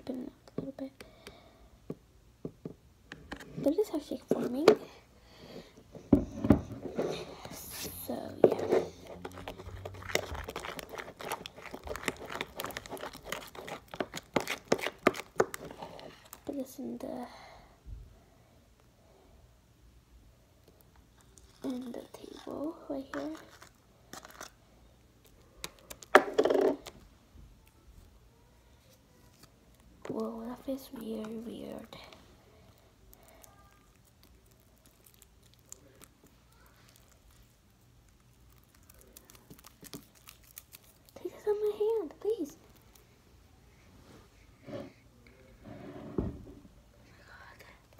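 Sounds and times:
slime stirred with wet crackles: 6.9s - 17.1s, 20.6s - 43.3s.

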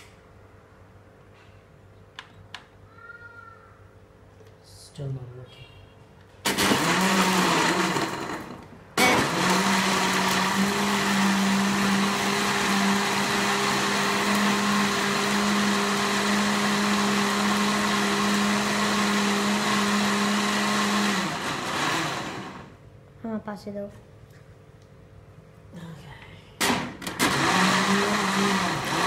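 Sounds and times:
blender motor humming: 6.4s - 22.8s, 26.6s - 29.0s.

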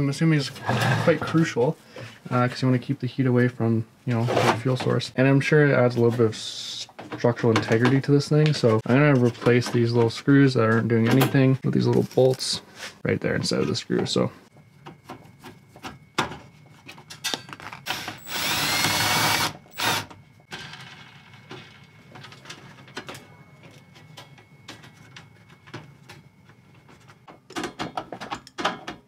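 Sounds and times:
power driver whirring: 17.9s - 20.1s.

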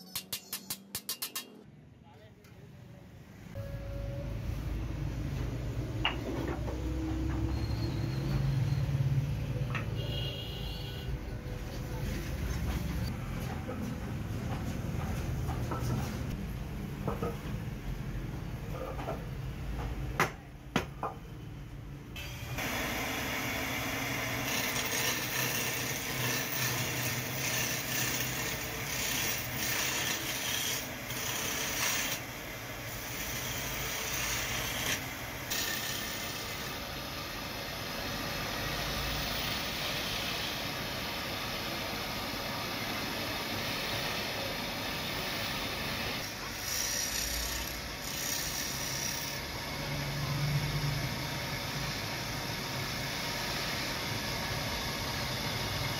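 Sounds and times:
chisel rasping on spinning wood: 24.5s - 32.2s.

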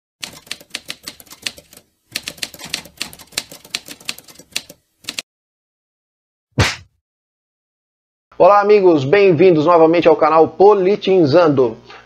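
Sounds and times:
typewriter key clacks: 0.2s - 5.2s.

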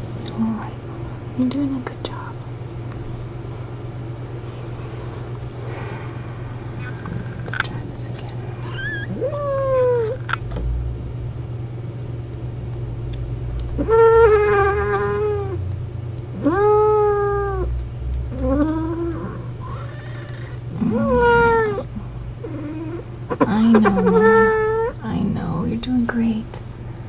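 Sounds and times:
steady low hum: 0.0s - 27.0s
cat yowling: 8.6s - 10.3s, 13.8s - 15.6s, 16.4s - 17.7s, 18.3s - 25.0s.

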